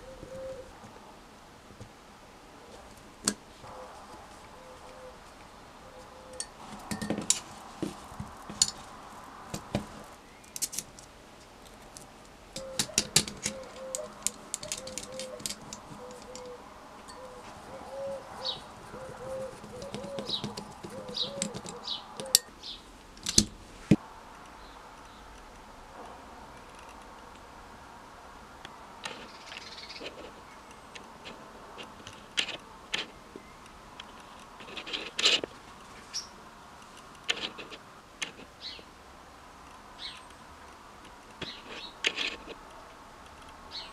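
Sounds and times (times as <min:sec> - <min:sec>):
plastic and metal parts clicking: 0:11.9 - 0:16.5.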